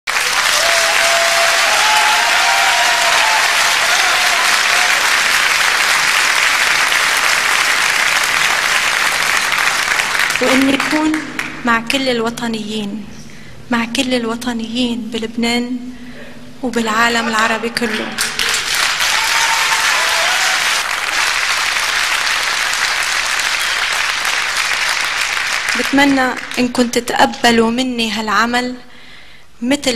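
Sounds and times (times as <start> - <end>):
audience applauding: 0.0 - 11.6, 17.6 - 26.7.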